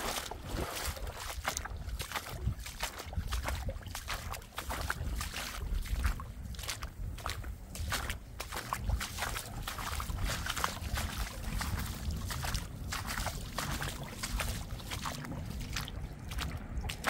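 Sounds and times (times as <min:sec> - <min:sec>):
low water rumble: 0:00.0 - 0:17.0
stream water rushing and splashing: 0:00.0 - 0:17.0.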